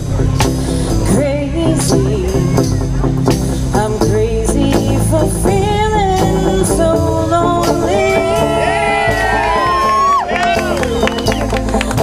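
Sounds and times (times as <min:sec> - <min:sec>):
electric guitar: 0:00.0 - 0:12.0
upright bass: 0:00.0 - 0:12.0
woman singing: 0:01.0 - 0:02.8, 0:03.6 - 0:10.0.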